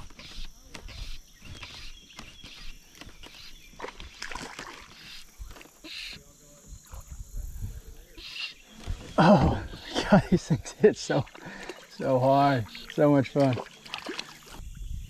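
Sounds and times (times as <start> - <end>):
water sloshing and splashing: 3.7 - 5.8, 11.0 - 14.6.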